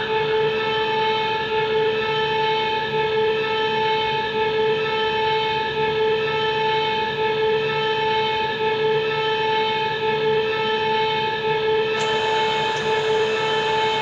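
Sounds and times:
hiss: 12.0 - 14.0
steady held whistle-like tone: 12.0 - 14.0.

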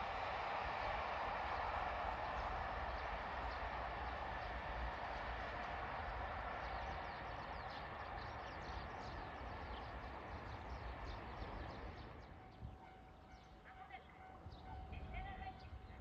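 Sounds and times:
train rumbling on rails: 0.0 - 16.0
small birds chirping: 6.5 - 14.8.

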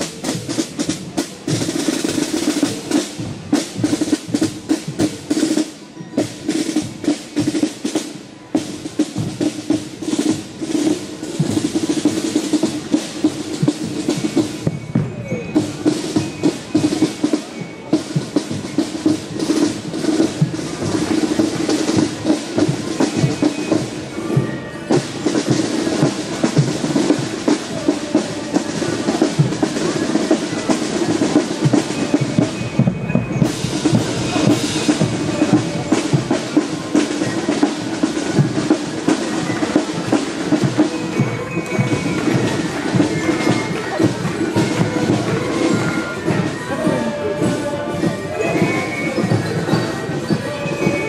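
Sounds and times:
marching snare and bass drums: 0.0 - 51.0.

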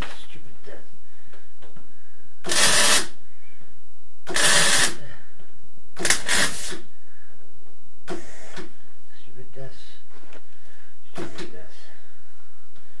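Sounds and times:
arc welder bursts: 2.4 - 3.2, 4.3 - 5.0, 6.0 - 6.8.

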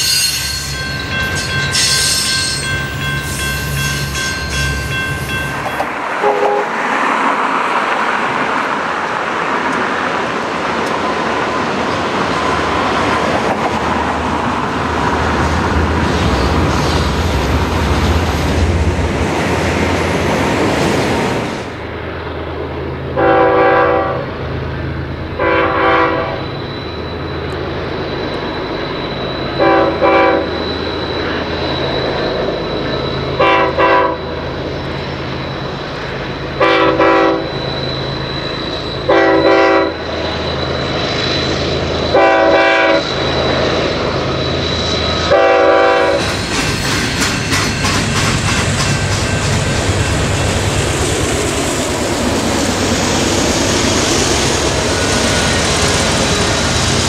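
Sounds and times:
diesel locomotives rumbling: 0.0 - 57.0
freight train wheels: 0.0 - 57.0
locomotive air horn blasts: 6.2 - 6.8, 23.2 - 24.3, 25.4 - 26.4, 29.6 - 30.5, 33.4 - 34.3, 36.6 - 37.5, 39.1 - 40.0, 42.1 - 43.1, 45.3 - 46.3.

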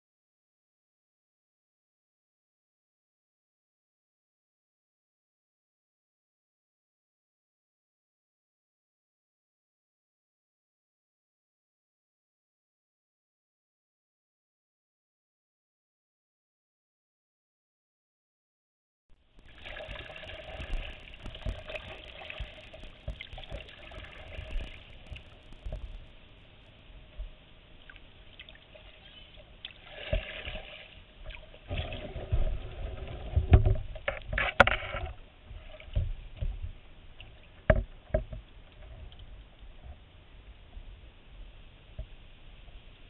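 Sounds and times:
paddle splashing: 19.4 - 26.2, 27.8 - 36.2
water trickling off paddle: 19.4 - 26.2.

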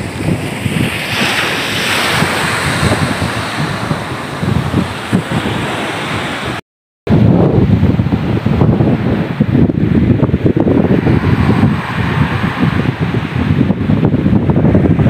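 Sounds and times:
waves breaking on pebble shore: 0.0 - 6.6
wind buffeting microphone: 0.0 - 15.0.

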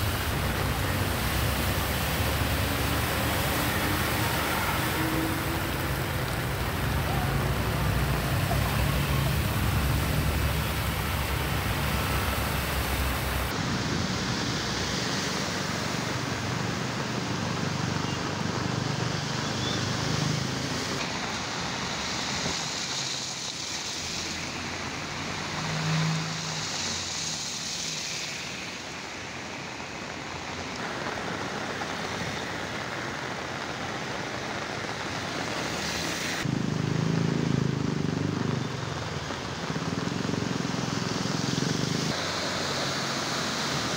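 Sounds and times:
vehicle engines running: 0.0 - 13.6, 36.4 - 42.3
tyres splashing through water: 0.0 - 16.9
rushing water hiss: 0.0 - 43.9.

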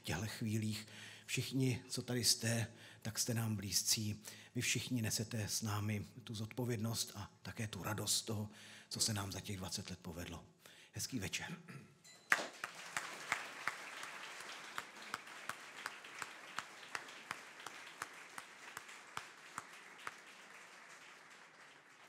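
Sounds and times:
audience applauding: 12.3 - 22.0
sharp claps close to microphone: 12.3 - 22.0.

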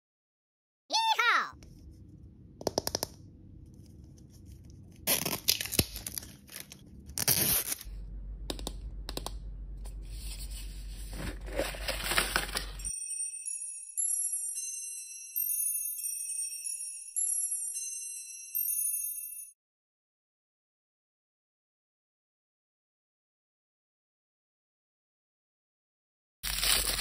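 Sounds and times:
plastic wrap crinkling and tearing: 4.6 - 7.9, 26.4 - 27.0
tinkling jingle music: 12.8 - 19.6.

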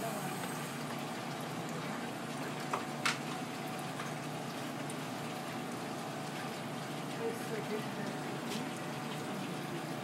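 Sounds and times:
kitchen background hiss: 0.0 - 0.8.

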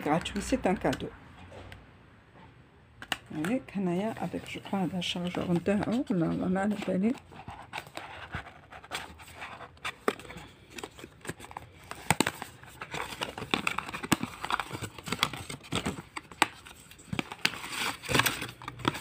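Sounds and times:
cardboard box unpacked: 4.2 - 19.0
packaging crinkling: 4.2 - 19.0.

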